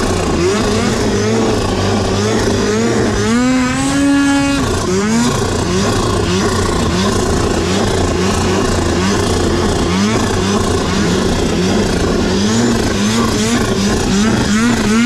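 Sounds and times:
snowmobile engine revving: 0.0s - 15.0s
steady rushing noise: 0.0s - 15.0s.

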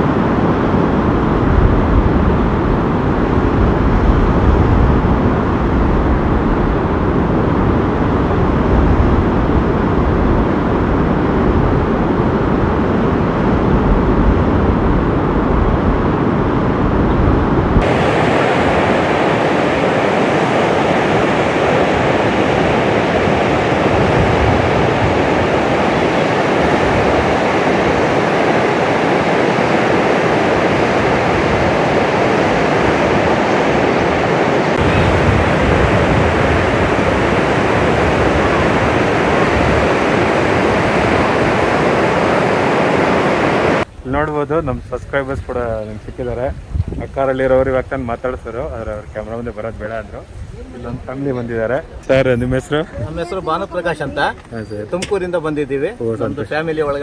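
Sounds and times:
waterfall roaring: 17.8s - 44.4s.

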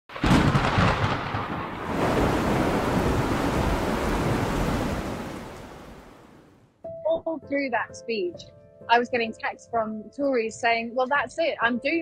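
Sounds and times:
low rumble of thunder: 0.1s - 6.5s
heavy rain hissing: 1.7s - 6.5s.

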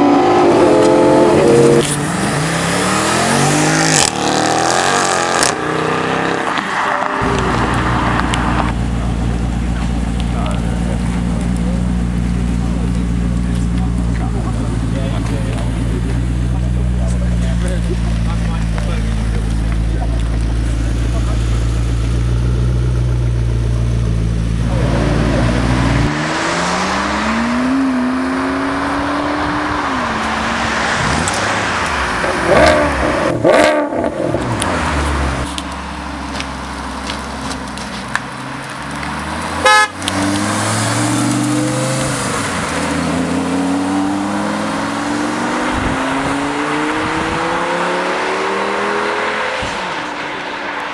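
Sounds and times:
sports car accelerating away: 0.0s - 50.9s
sports car engine idling and revving: 0.0s - 50.9s
car horn: 39.6s - 40.1s.

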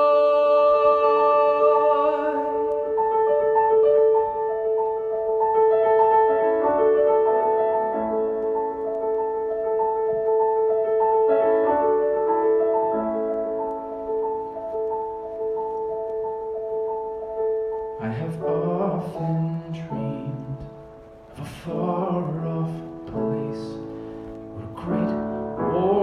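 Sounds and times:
man singing held note: 0.0s - 2.8s
solo piano chords: 0.0s - 26.0s.

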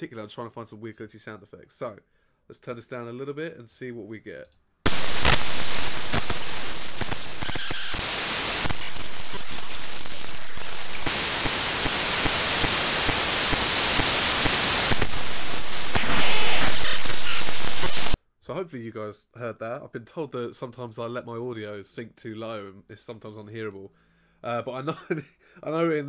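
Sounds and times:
harsh digital static: 4.9s - 18.2s.

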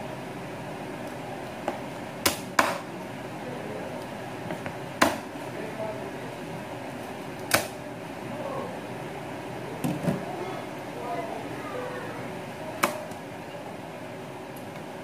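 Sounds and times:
steady background hum: 0.0s - 15.0s.

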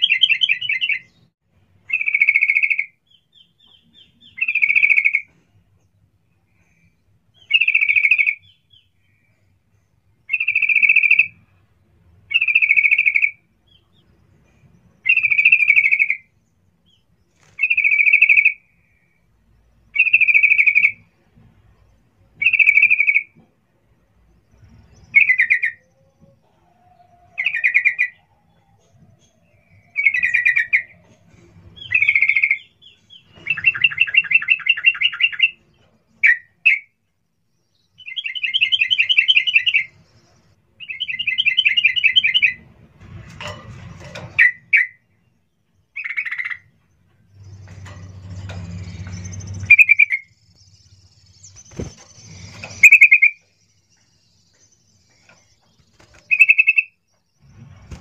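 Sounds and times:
bulbul calling and trilling: 1.9s - 5.3s, 7.4s - 8.9s, 10.3s - 11.4s, 12.3s - 13.8s, 15.0s - 16.3s, 20.0s - 21.0s, 45.9s - 46.7s, 47.4s - 57.1s.

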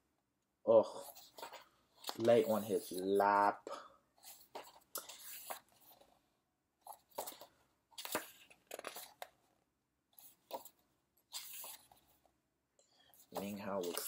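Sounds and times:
book pages turning: 1.0s - 3.3s, 4.2s - 6.2s, 6.8s - 9.5s, 10.2s - 12.3s, 13.0s - 14.0s.

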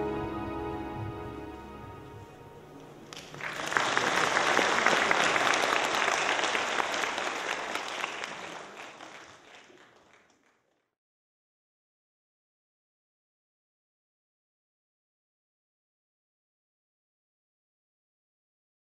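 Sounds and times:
audience applause: 3.0s - 10.9s.

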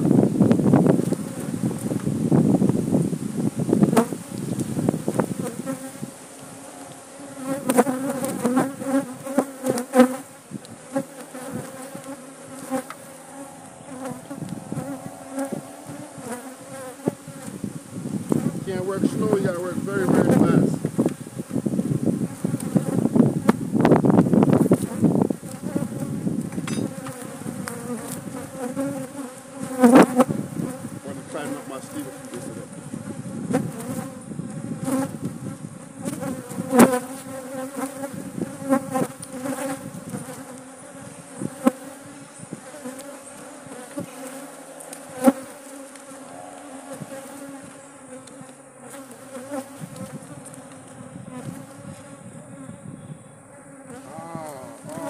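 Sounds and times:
honey bees buzzing: 0.0s - 55.0s.

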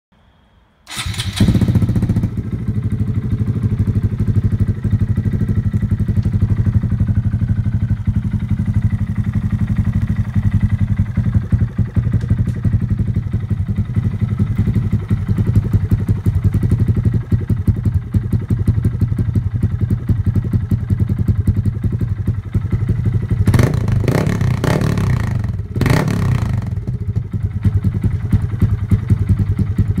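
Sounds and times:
motorcycle engine idling and revving: 0.9s - 30.0s.

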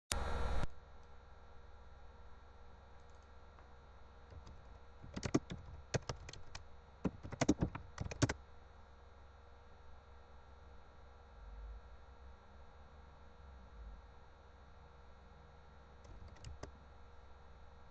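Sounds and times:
faint hum: 0.1s - 17.9s
keyboard keys clicking: 4.3s - 8.4s, 16.1s - 16.7s.

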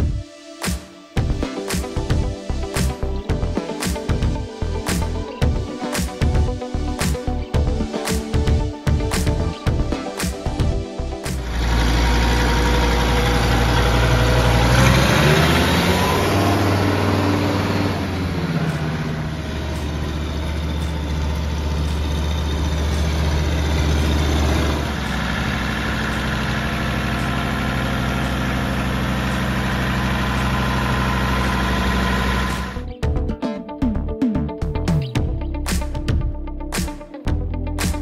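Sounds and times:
tractor diesel engine revving: 11.2s - 32.9s.

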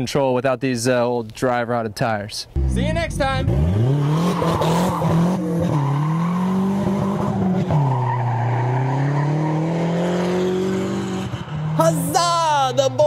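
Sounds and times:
car engine accelerating hard: 2.6s - 12.2s.

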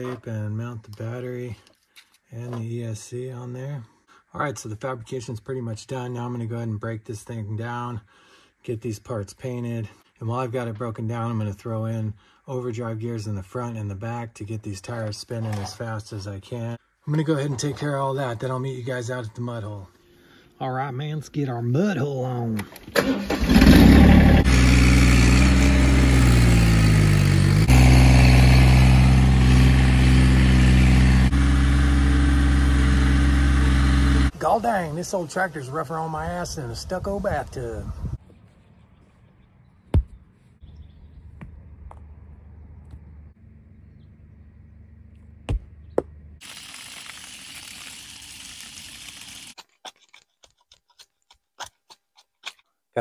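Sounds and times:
tractor engine running: 23.0s - 35.2s
hose water splashing into mud: 46.4s - 49.7s.

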